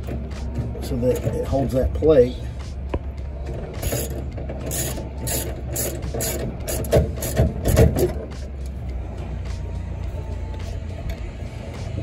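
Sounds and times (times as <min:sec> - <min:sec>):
ratchet wrench clicking: 0:03.8 - 0:08.8.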